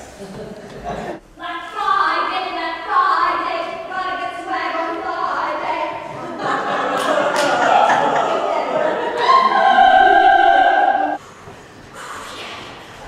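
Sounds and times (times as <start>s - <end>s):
operatic singing: 7.2s - 11.2s.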